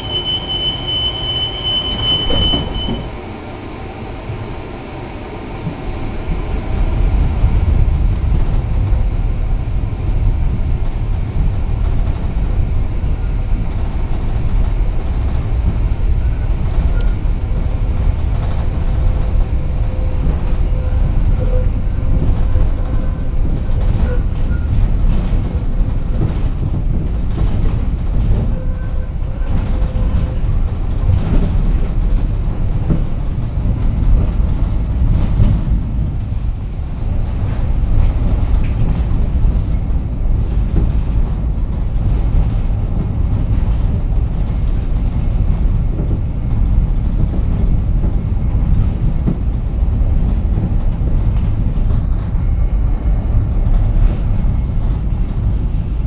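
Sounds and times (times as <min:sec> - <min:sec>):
faint wheel squeal: 0:00.0 - 0:03.1
tram wheels rumbling on rail: 0:00.0 - 0:56.0.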